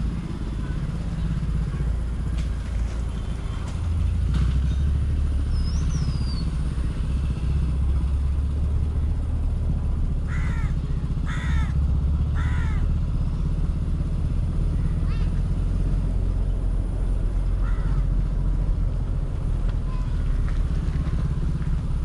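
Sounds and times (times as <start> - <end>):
motorcycle engine running: 0.0 - 22.0
crow cawing: 10.3 - 12.9, 17.6 - 18.1.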